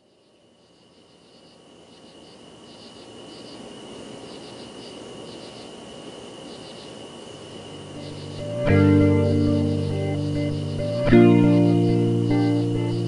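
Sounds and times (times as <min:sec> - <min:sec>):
insects chirping: 0:00.0 - 0:13.0
soft rushing background: 0:00.0 - 0:13.0
steady high tone: 0:07.7 - 0:13.0.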